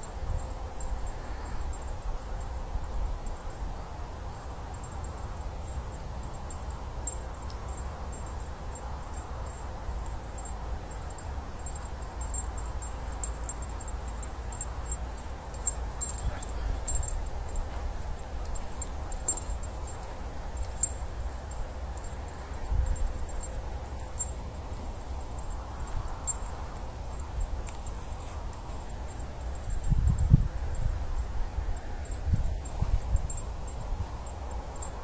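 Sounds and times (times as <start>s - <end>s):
faint high ticking whine: 0.0s - 35.0s
wind buffeting microphone: 9.1s - 35.0s.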